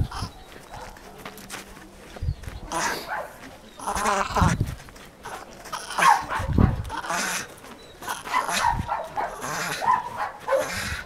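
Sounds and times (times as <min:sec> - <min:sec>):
dog barking: 0:03.1 - 0:03.4, 0:06.0 - 0:06.9, 0:08.2 - 0:11.0.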